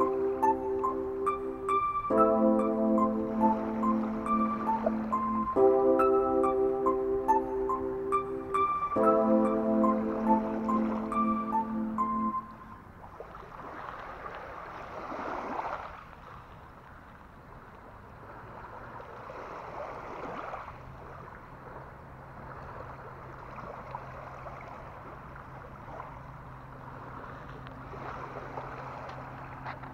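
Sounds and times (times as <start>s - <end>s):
waves lapping on gravel shore: 13.1s - 21.8s, 26.8s - 29.9s.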